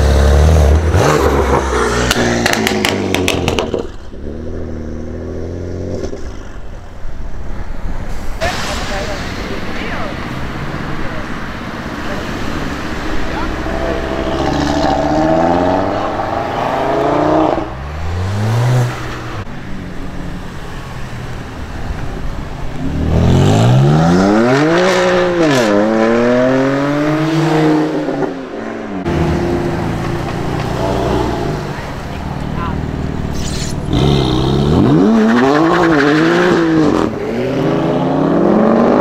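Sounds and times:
car engine revving loudly: 0:13.4 - 0:19.5, 0:22.8 - 0:28.3, 0:33.9 - 0:39.0.

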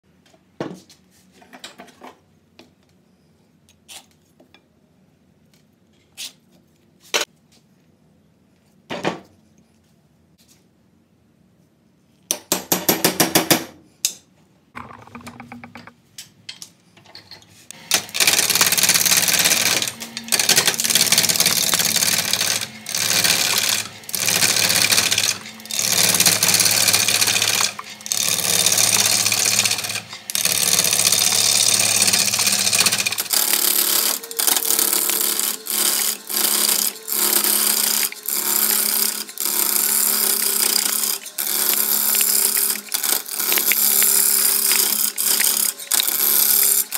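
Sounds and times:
gouge cutting wood on lathe: 0:17.7 - 0:46.9
lathe humming: 0:17.7 - 0:46.9.

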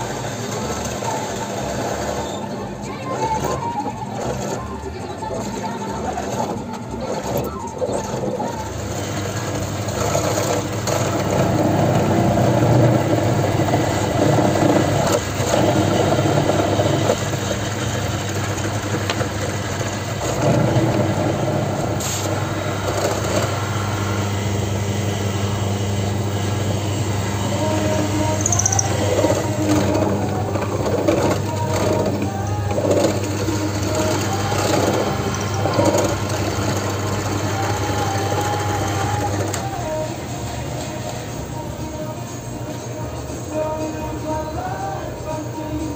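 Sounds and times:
drill press motor hum: 0:00.0 - 0:45.9
drill bit boring into wood: 0:08.7 - 0:40.0.

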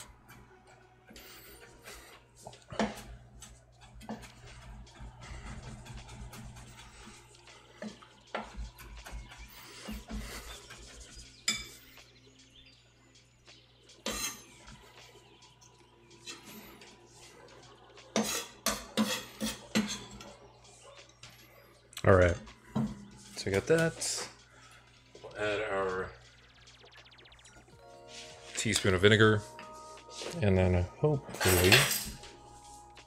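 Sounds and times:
utensils clicking and knocking: 0:02.6 - 0:11.9.

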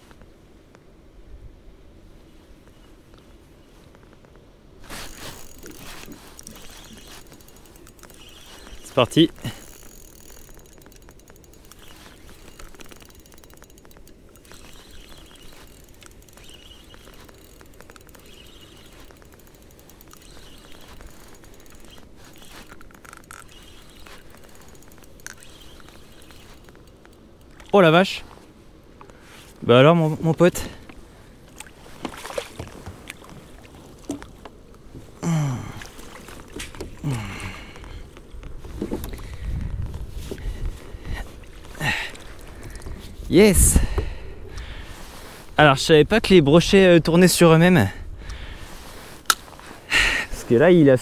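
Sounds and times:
fishing reel gears ticking: 0:04.9 - 0:28.2
faint bird chirps: 0:08.0 - 0:09.0, 0:14.4 - 0:17.2, 0:18.0 - 0:19.2, 0:20.1 - 0:22.6
water splashing: 0:31.5 - 0:34.4.

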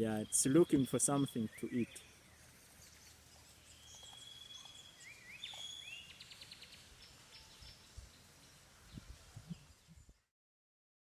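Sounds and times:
faint birdsong: 0:00.0 - 0:10.3.

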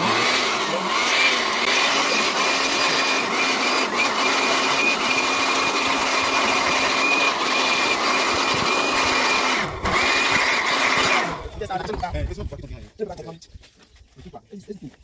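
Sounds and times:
electric air blower whining: 0:00.0 - 0:11.6.

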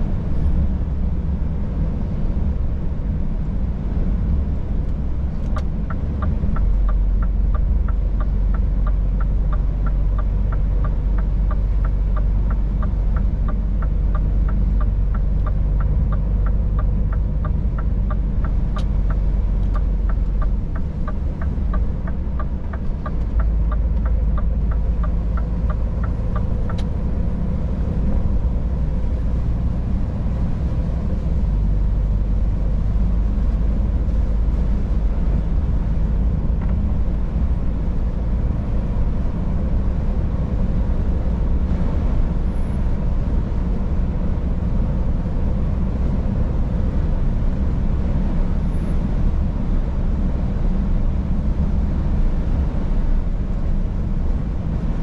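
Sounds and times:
truck engine and road noise: 0:00.0 - 0:55.0
light high ticks: 0:05.4 - 0:27.4.

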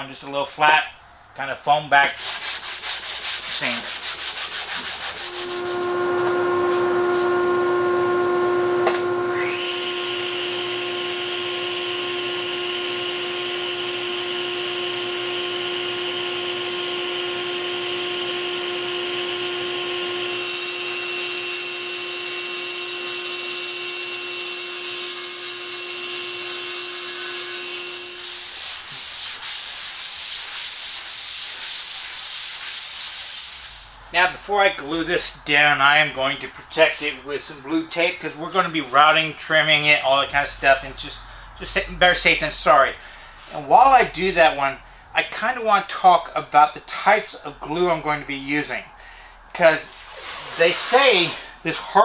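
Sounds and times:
sanding block on wood: 0:02.2 - 0:07.4, 0:28.2 - 0:34.0
machine whine: 0:05.0 - 0:28.7.

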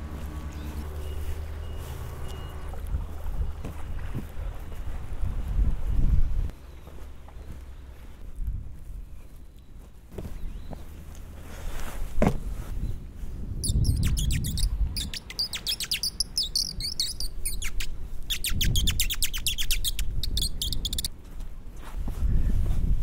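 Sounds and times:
birds chirping: 0:00.0 - 0:05.4, 0:06.5 - 0:08.2, 0:08.8 - 0:11.3, 0:12.8 - 0:21.1
wind rumble on microphone: 0:00.0 - 0:06.6, 0:08.0 - 0:09.5, 0:11.4 - 0:23.0.

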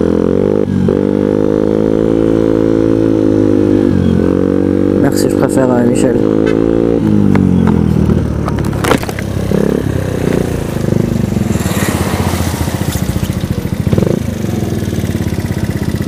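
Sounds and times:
scooter engine idling: 0:07.1 - 0:16.0.

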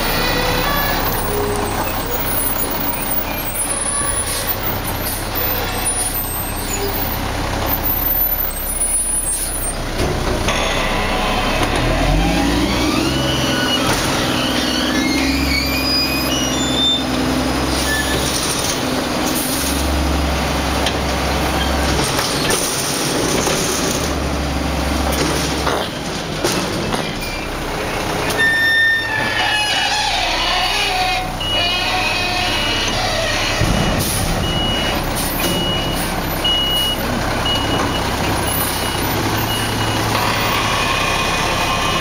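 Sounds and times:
truck diesel engine revving: 0:00.0 - 0:25.7, 0:27.4 - 0:42.0
high squealing hydraulic tones: 0:10.5 - 0:18.8, 0:28.3 - 0:42.0.

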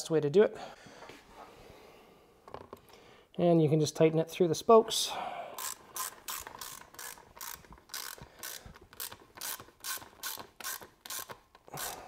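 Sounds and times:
socket ratchet clicking: 0:05.6 - 0:12.0.

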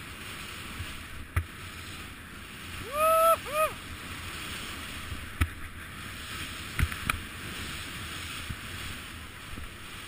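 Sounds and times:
wind on microphone: 0:00.0 - 0:10.0
skis hissing through snow: 0:05.9 - 0:10.0.

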